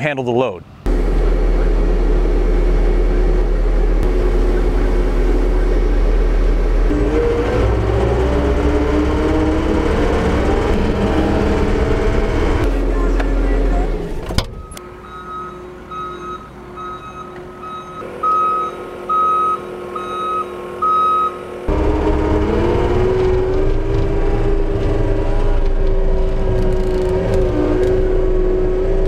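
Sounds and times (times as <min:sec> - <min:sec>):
diesel engine with whine: 0:00.7 - 0:29.0
backup alarm beeping: 0:14.4 - 0:21.4.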